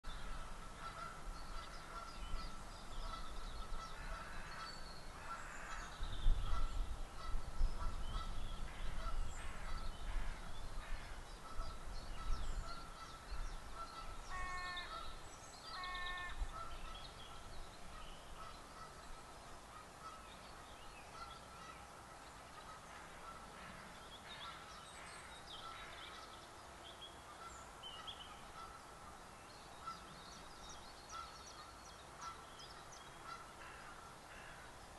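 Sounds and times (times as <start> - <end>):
songbirds chirping: 0.0 - 34.9
goose honks: 33.2 - 34.6.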